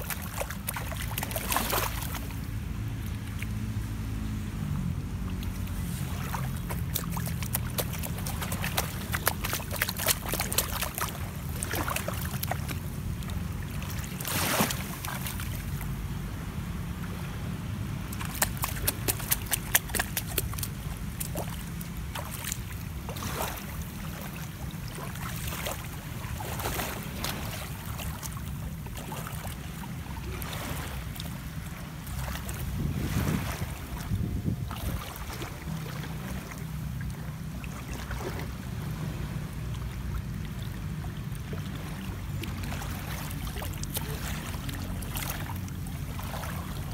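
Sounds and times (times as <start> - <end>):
feet splashing in shallow water: 0.0 - 16.0, 16.8 - 46.9
wind rumble on microphone: 0.0 - 46.9
feet squelching on wet sand: 5.7 - 15.5, 18.1 - 23.6.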